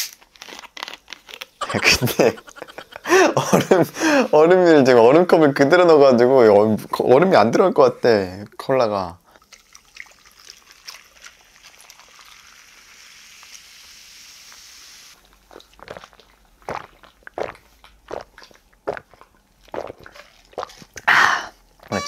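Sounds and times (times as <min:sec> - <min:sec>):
loud gulps: 0:01.6 - 0:04.2, 0:15.4 - 0:22.0
cola pouring and fizzing over ice: 0:09.3 - 0:16.0.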